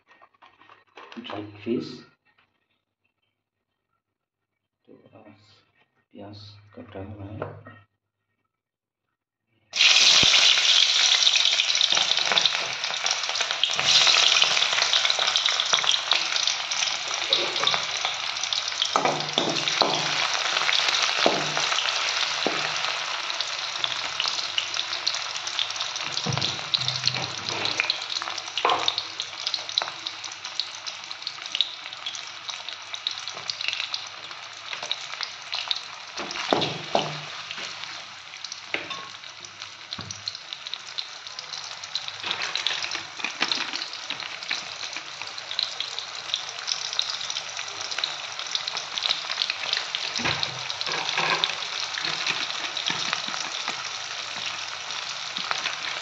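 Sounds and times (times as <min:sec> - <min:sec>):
onions sizzling in hot oil: 0:09.7 - 0:56.0
spatula scraping wok: 0:11.8 - 0:29.0, 0:42.1 - 0:44.6, 0:49.8 - 0:54.7.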